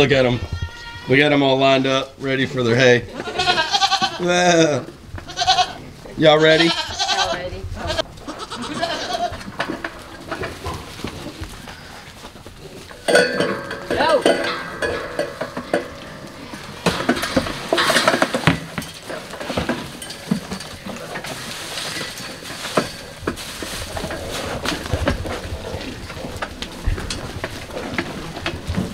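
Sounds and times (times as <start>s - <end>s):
goats bleating: 0.0s - 1.5s, 3.0s - 9.6s
clattering knocks: 12.9s - 21.4s.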